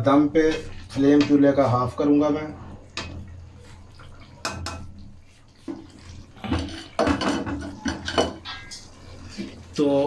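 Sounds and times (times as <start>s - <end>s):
spoon scraping pan: 3.0s - 9.7s.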